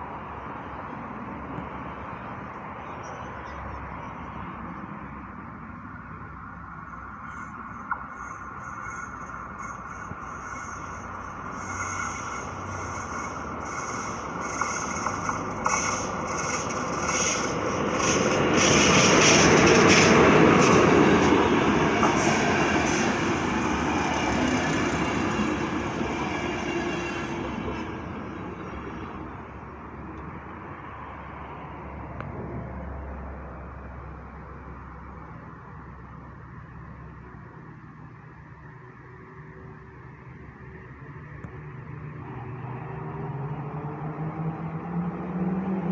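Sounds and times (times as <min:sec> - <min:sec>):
passenger train passing: 0:00.0 - 0:45.9
crossing warning bell ringing: 0:06.7 - 0:29.2.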